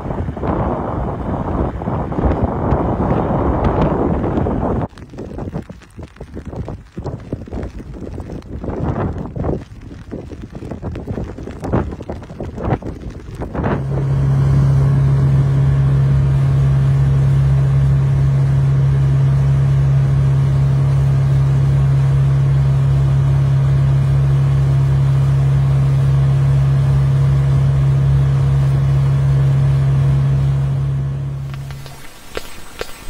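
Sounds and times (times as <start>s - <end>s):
low engine-like hum: 13.6s - 32.0s.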